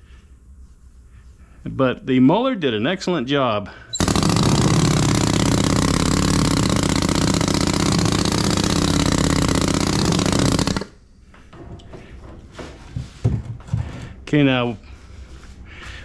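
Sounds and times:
pneumatic sand rammer hammering: 0:03.9 - 0:11.0.

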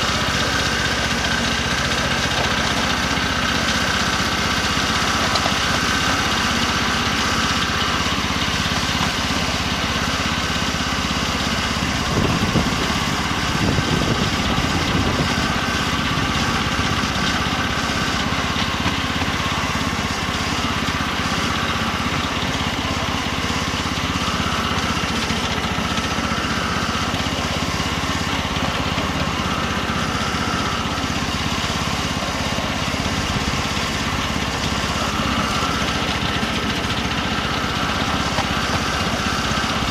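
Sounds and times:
miniature locomotive engine running: 0:00.0 - 0:39.9.

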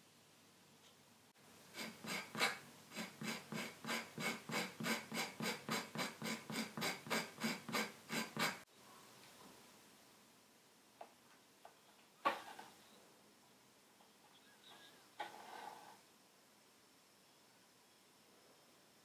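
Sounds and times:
tool scraping leather edge: 0:01.8 - 0:08.6, 0:15.2 - 0:16.0.

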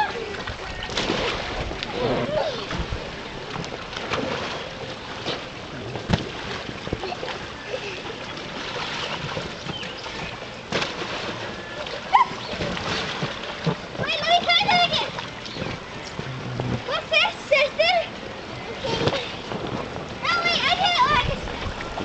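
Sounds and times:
water splashing in pool: 0:00.0 - 0:22.0
children's voices: 0:14.0 - 0:15.2, 0:16.3 - 0:19.4, 0:20.2 - 0:22.0.

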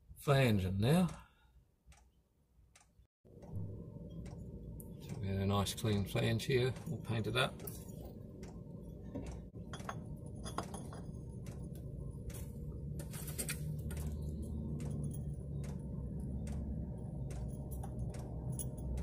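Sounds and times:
steady low hum: 0:03.3 - 0:19.0
light metallic clinks and scrapes: 0:09.7 - 0:11.7, 0:17.4 - 0:19.0.

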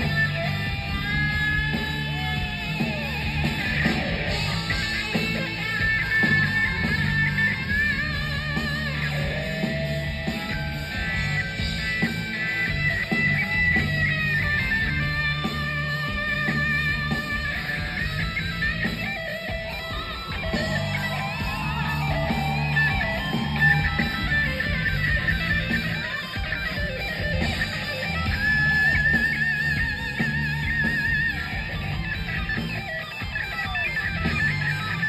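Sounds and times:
live rock band playing: 0:00.0 - 0:35.0.

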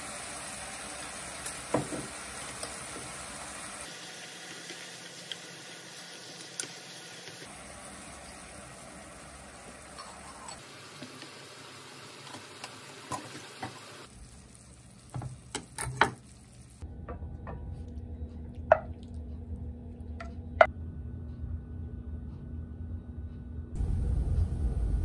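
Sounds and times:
food simmering with bubbling hiss: 0:00.0 - 0:16.9
wood knocking against pan: 0:18.7 - 0:18.9.

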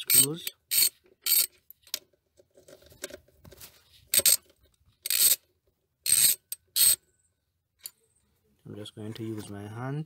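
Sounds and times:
socket ratchet clicking: 0:00.0 - 0:01.5, 0:05.0 - 0:05.4, 0:06.1 - 0:07.0
tool rubbing on bolt: 0:00.0 - 0:01.6, 0:05.0 - 0:05.4, 0:06.1 - 0:07.0.

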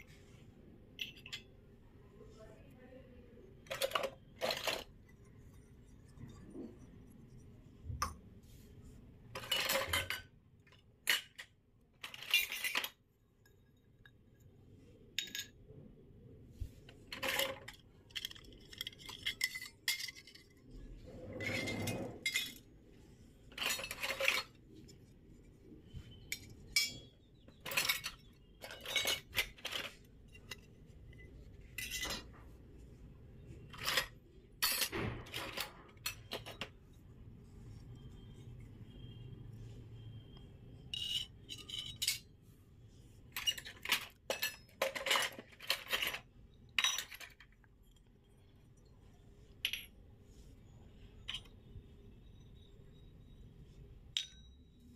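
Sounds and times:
toy metal dishes clinking: 0:01.0 - 0:01.6, 0:03.6 - 0:06.7, 0:09.4 - 0:14.3, 0:15.2 - 0:15.6, 0:17.0 - 0:22.8, 0:23.5 - 0:25.0, 0:26.0 - 0:32.4, 0:33.6 - 0:36.7, 0:40.9 - 0:42.4, 0:43.3 - 0:47.6, 0:51.0 - 0:51.6, 0:54.1 - 0:54.9.

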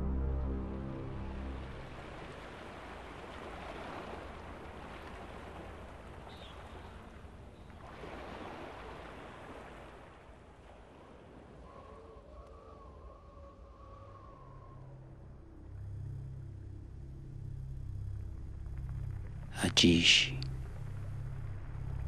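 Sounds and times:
sea waves washing onto beach: 0:01.4 - 0:12.5.

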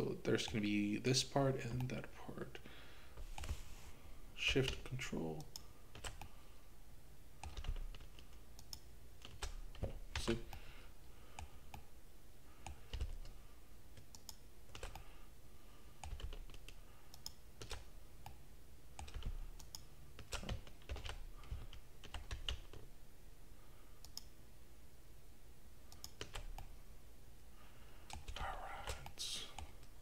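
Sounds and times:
computer keyboard keys clicking: 0:05.4 - 0:06.3, 0:07.4 - 0:10.4, 0:12.6 - 0:13.4, 0:14.0 - 0:15.1, 0:16.0 - 0:18.4, 0:19.0 - 0:22.8, 0:25.9 - 0:26.7, 0:28.1 - 0:29.9.

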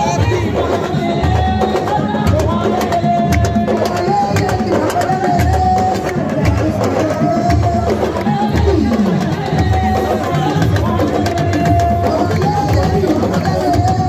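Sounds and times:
loud music with drums: 0:00.0 - 0:14.0.

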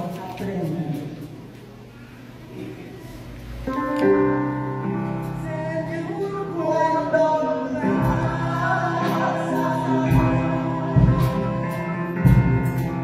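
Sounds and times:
held instrumental chords: 0:03.4 - 0:13.0
hymn singing: 0:04.4 - 0:13.0.

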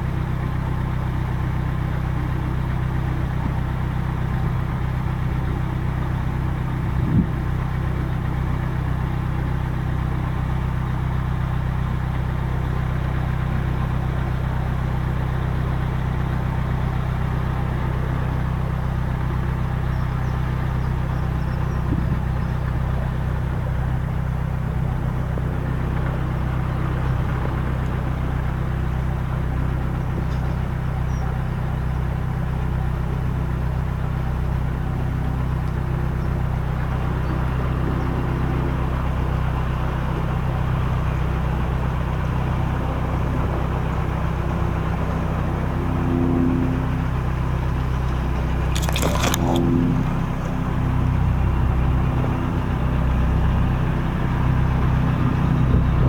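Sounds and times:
boat engine running: 0:00.0 - 0:56.0
scraping rustle: 0:48.7 - 0:50.6.

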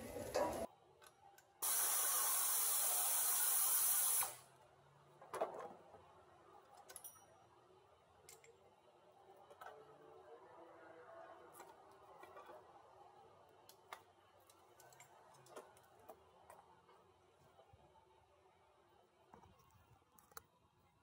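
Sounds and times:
air ratchet exhaust hiss: 0:01.6 - 0:04.5.

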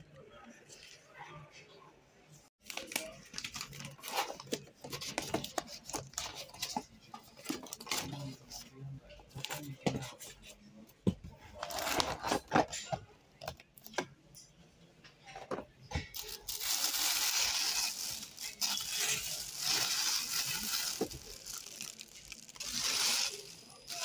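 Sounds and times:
plastic bag crinkling: 0:16.2 - 0:24.0.

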